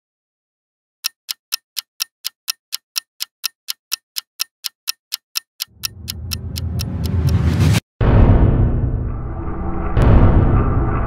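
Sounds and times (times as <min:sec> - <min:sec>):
clock ticking: 0:01.0 - 0:07.8.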